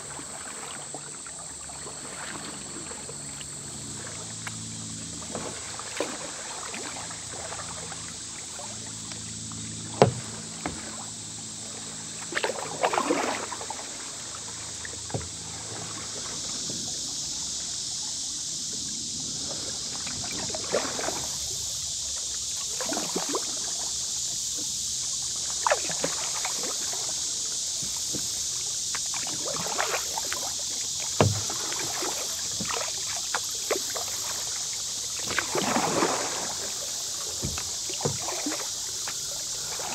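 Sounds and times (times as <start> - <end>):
paddle splashing in water: 0.0 - 39.9
paddle knocking on hull: 9.9 - 10.9, 29.0 - 34.4, 35.2 - 39.9.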